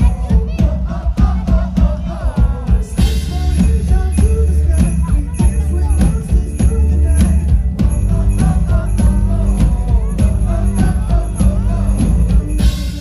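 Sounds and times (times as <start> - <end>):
live band music over loudspeakers: 0.0 - 13.0
bright bell shimmer over band music: 2.9 - 13.0.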